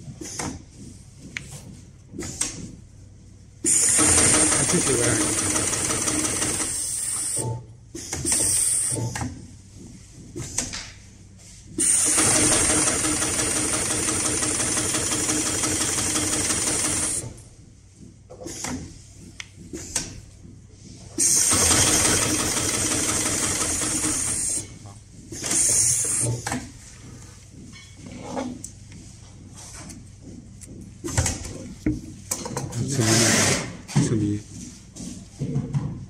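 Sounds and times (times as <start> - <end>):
sewing machine stitching: 3.7 - 7.4, 11.8 - 17.3, 21.2 - 24.6, 33.0 - 33.7.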